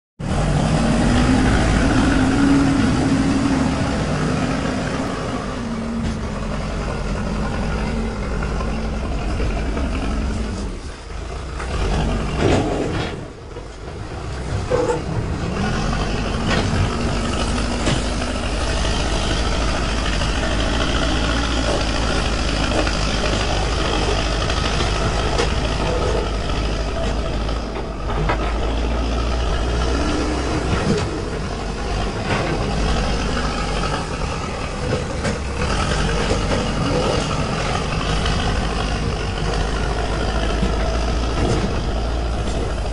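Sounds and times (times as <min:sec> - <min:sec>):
diesel engine under load: 0:00.2 - 0:42.9.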